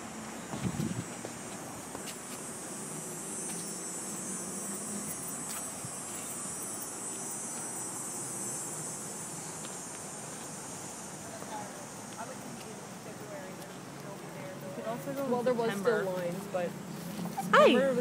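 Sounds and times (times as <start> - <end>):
insects buzzing: 0.0 - 18.0.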